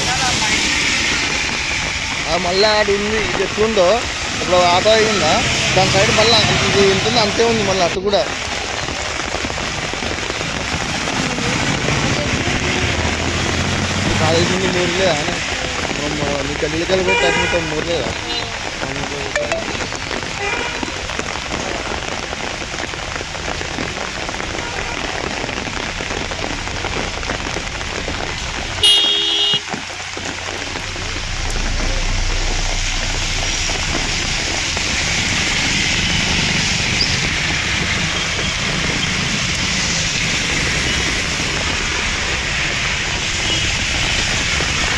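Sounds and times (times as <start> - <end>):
steady rain and water noise: 0.0 - 44.9
traffic: 0.0 - 44.9
low rumble: 30.3 - 35.6.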